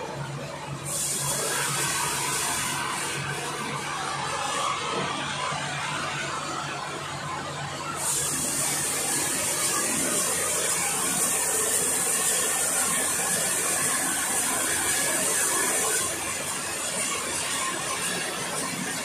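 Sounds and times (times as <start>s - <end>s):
loud steady high hiss: 0.0s - 19.0s
sawmill machinery running: 0.0s - 19.0s.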